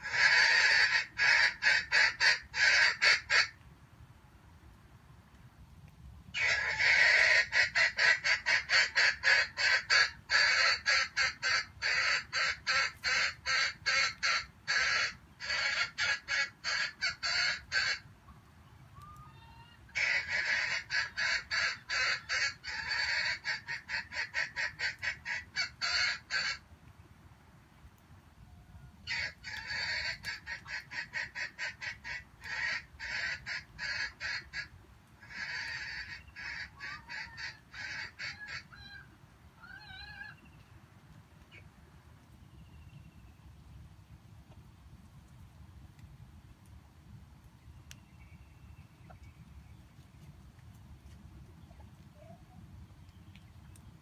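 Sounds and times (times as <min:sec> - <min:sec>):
junglefowl clucking: 0:00.0 - 0:03.6, 0:06.4 - 0:18.0, 0:19.0 - 0:26.6, 0:29.0 - 0:40.4.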